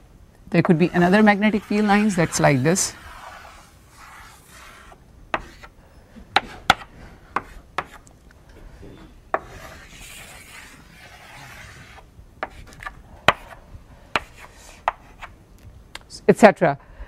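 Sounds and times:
chalk scraping on blackboard: 0:00.6 - 0:05.8, 0:06.4 - 0:08.1, 0:09.4 - 0:13.6, 0:14.2 - 0:15.4
chalk tapping on blackboard: 0:03.0 - 0:05.7, 0:06.4 - 0:08.1, 0:09.4 - 0:13.5, 0:14.2 - 0:15.4.

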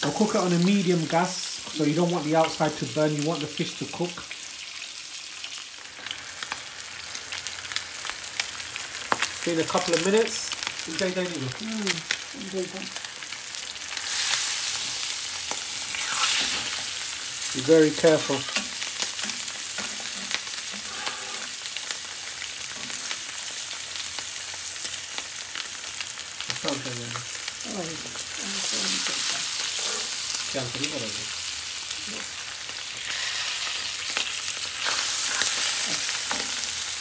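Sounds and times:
fish sizzling in oil: 0:00.0 - 0:37.0
metal spatula scraping pan: 0:19.8 - 0:21.6.

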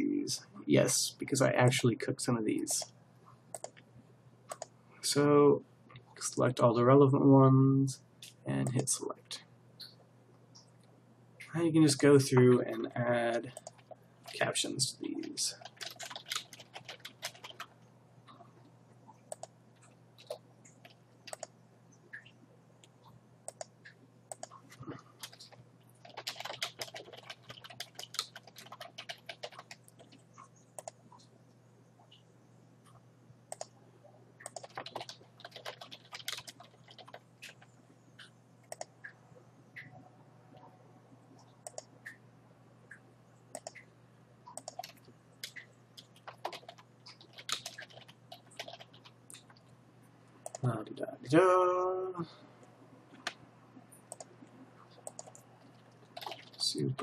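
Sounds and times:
faint low hum: 0:00.0 - 0:57.0
typing on computer keyboard: 0:13.5 - 0:14.4, 0:15.2 - 0:17.7, 0:20.2 - 0:21.5, 0:25.2 - 0:30.2, 0:34.4 - 0:37.7, 0:44.5 - 0:49.2, 0:54.1 - 0:56.6.

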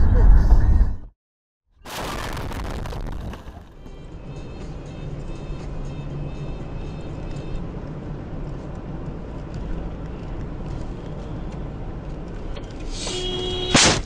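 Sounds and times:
car crash: 0:01.8 - 0:03.8
car engine and road noise: 0:02.3 - 0:14.0.

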